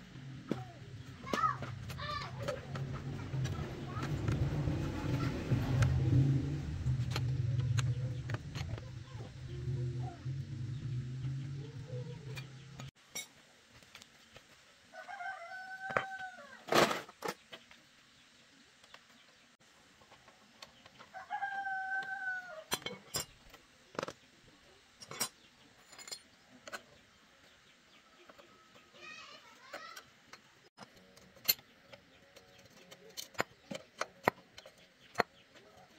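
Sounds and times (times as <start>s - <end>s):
low hum: 0.0s - 13.0s
rooster crowing: 14.9s - 16.6s, 21.1s - 22.7s
hand tools clinking and knocking: 25.0s - 26.9s.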